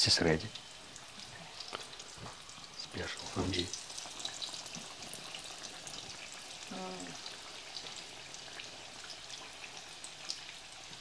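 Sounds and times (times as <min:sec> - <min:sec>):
pasties sizzling in oil: 0:00.0 - 0:11.0.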